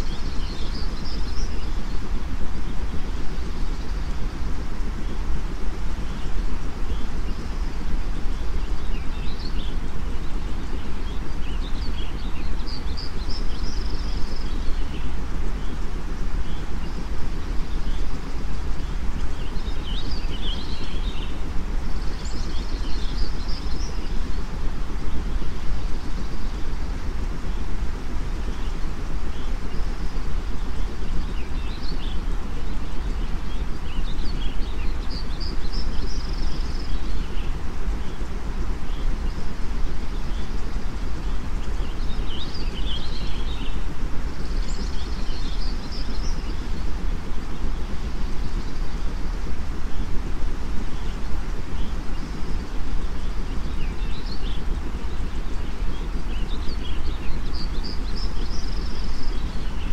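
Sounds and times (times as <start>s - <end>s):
steady white noise: 0.0s - 59.9s
bird chirping: 50.9s - 59.9s.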